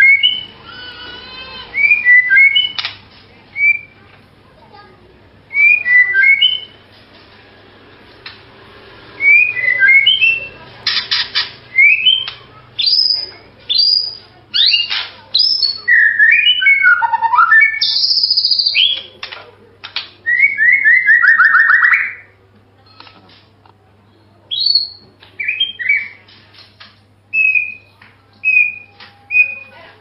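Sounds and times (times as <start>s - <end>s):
bird singing whistled phrases: 1.8s - 2.8s, 3.6s - 4.0s, 5.5s - 6.8s, 9.2s - 10.5s, 11.7s - 19.1s, 20.3s - 22.3s, 24.5s - 26.2s, 27.3s - 29.7s.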